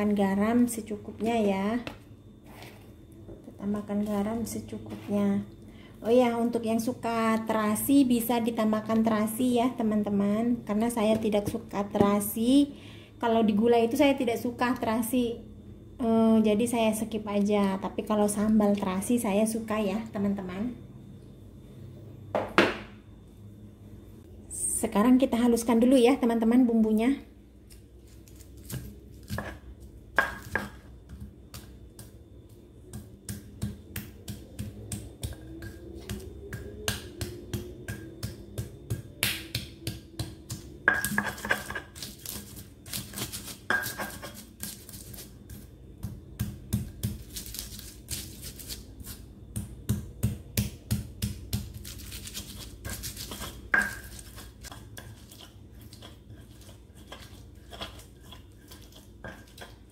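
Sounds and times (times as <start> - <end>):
stone pestle knocking in mortar: 28.7 - 32.1, 32.9 - 41.9, 43.6 - 44.8, 49.5 - 51.8, 52.8 - 55.4
pestle scraping in mortar: 40.8 - 45.6, 51.6 - 59.9.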